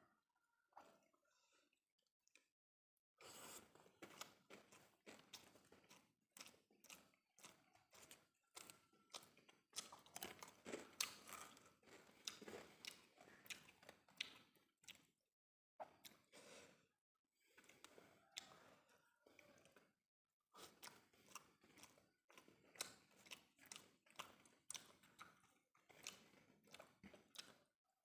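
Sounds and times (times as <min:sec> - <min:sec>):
breaths: 0:00.8 - 0:01.8, 0:16.2 - 0:19.8
wet chewing: 0:03.2 - 0:15.2, 0:15.8 - 0:16.5, 0:17.4 - 0:19.9, 0:20.6 - 0:27.7.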